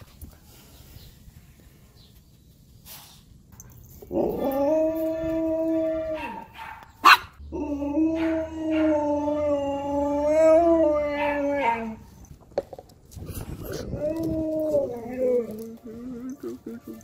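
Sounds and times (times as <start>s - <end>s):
dog howling: 4.1s - 6.5s, 7.5s - 12.1s, 13.7s - 16.8s.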